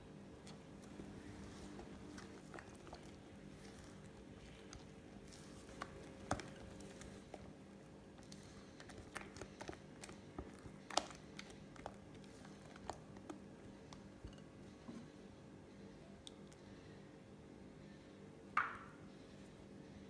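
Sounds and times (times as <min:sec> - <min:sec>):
low steady hum: 0:00.0 - 0:20.0
spatula scraping batter: 0:00.4 - 0:14.9.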